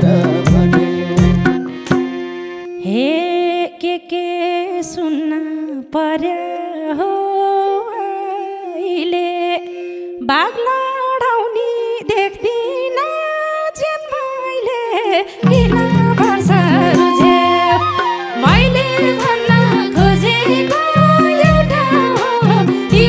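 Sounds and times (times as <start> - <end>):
wavering melody line: 0.0 - 3.5, 15.4 - 23.0.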